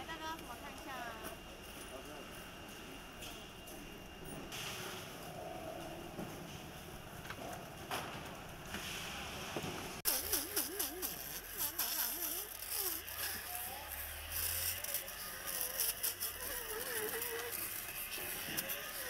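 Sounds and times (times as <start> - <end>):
blade scraping fish scales: 10.1 - 19.0.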